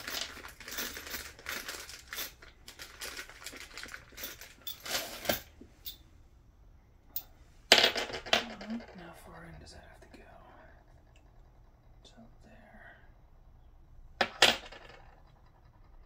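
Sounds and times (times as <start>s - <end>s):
small metal parts clinking: 0.0s - 6.0s.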